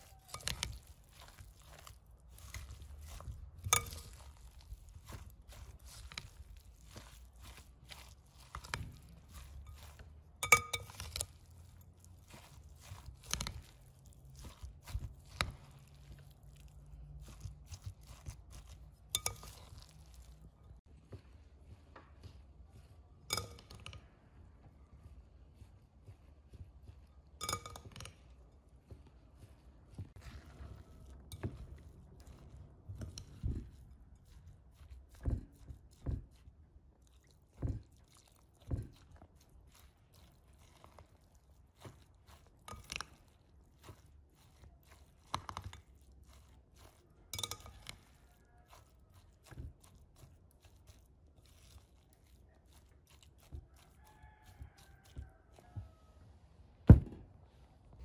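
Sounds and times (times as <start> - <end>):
spoon clinking against glass bowl: 0.0 - 11.4, 17.2 - 20.2, 23.3 - 24.0, 27.4 - 28.2, 47.3 - 48.8
wet mixing sounds: 0.0 - 58.0.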